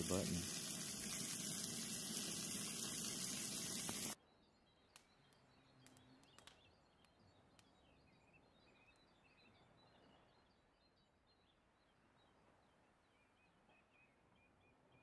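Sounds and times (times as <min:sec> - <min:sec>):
steady hiss: 0:00.0 - 0:04.2
faint bird chirps: 0:04.2 - 0:15.0.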